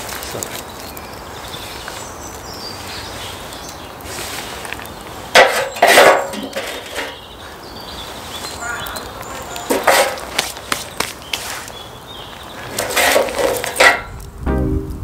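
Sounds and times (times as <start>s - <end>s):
scraping rustling noises: 0.0s - 1.0s, 4.0s - 7.2s, 9.3s - 11.8s, 12.6s - 14.1s
logs being handled: 0.0s - 1.2s, 4.0s - 7.2s, 9.2s - 11.8s, 12.5s - 14.2s.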